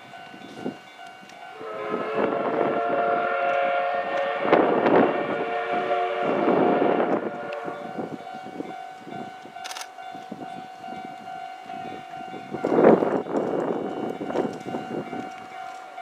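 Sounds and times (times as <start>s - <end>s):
steam locomotive exhaust chuffing: 0.0s - 16.0s
steady tone: 1.4s - 9.0s.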